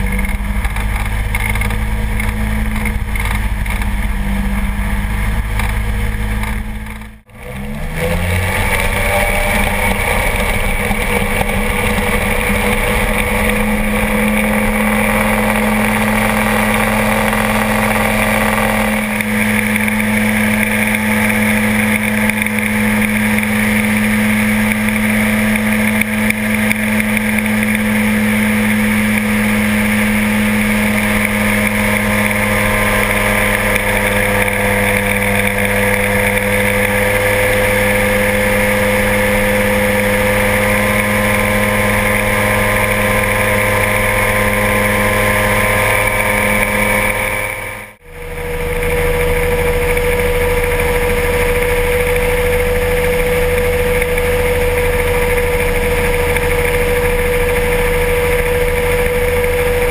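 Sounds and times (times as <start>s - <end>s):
aircraft engine droning: 0.0s - 59.9s.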